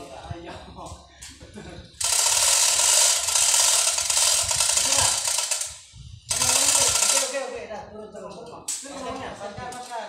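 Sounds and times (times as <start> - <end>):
power tool grinding: 2.0 - 7.4.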